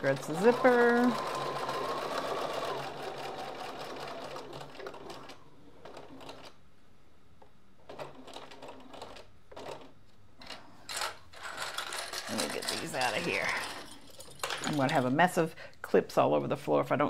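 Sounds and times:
sewing machine stitching: 0:00.0 - 0:06.6, 0:07.8 - 0:10.0, 0:10.9 - 0:15.2.

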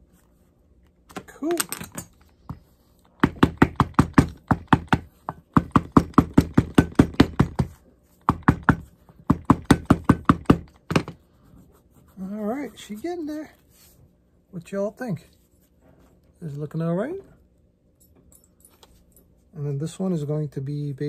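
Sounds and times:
hammer knocking on leather: 0:03.2 - 0:11.2.

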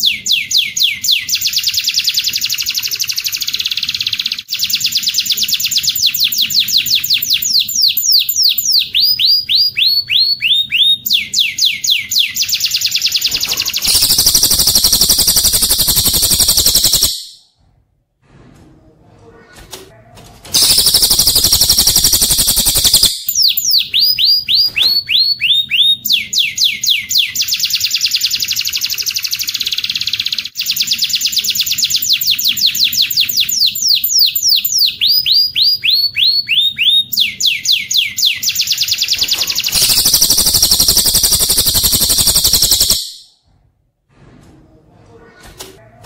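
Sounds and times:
high canary trill: 0:00.0 - 0:17.5, 0:19.4 - 0:43.4
rapid downward whistled bird notes: 0:04.5 - 0:17.4, 0:20.6 - 0:26.8, 0:32.1 - 0:43.3.

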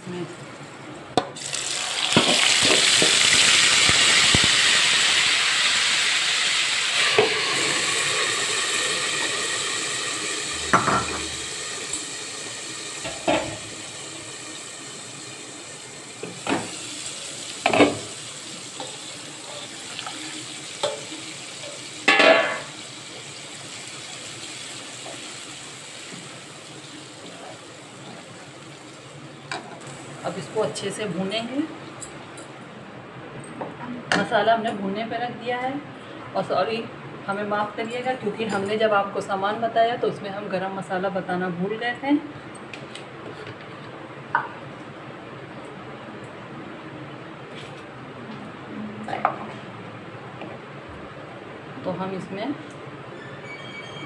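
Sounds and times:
gravy sizzling in hot oil: 0:01.4 - 0:31.0.

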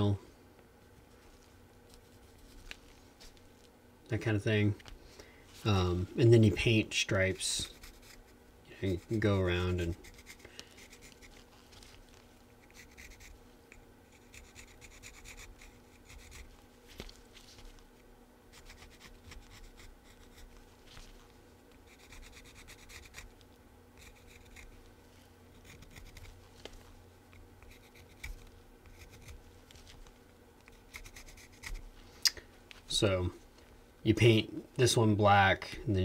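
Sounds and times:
pencil scratching on wood: 0:07.6 - 0:11.4, 0:12.6 - 0:13.4, 0:14.1 - 0:16.5, 0:18.5 - 0:20.5, 0:21.9 - 0:23.3, 0:24.0 - 0:24.8, 0:25.6 - 0:26.4, 0:27.6 - 0:29.4, 0:30.7 - 0:31.8.

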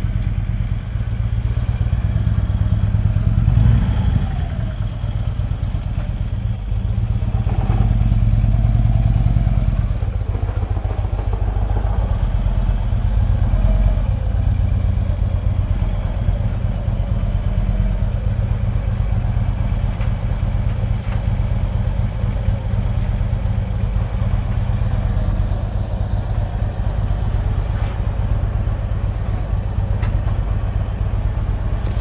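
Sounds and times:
motorcycle engine running: 0:00.0 - 0:32.0
faint clicks: 0:05.1 - 0:06.2, 0:07.9 - 0:08.4, 0:27.6 - 0:28.0.

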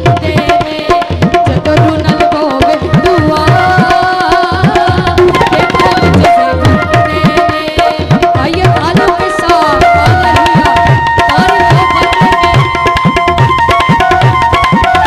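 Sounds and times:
hand drums playing a rhythm: 0:00.0 - 0:15.0
held melody notes: 0:05.2 - 0:07.7.

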